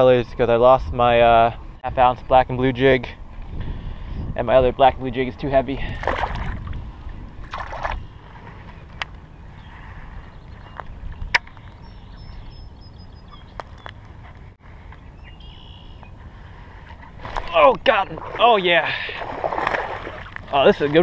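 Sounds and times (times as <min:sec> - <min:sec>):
wind rumble on microphone: 0:00.0 - 0:18.4
fish splashing into water: 0:07.5 - 0:08.0, 0:19.0 - 0:20.4.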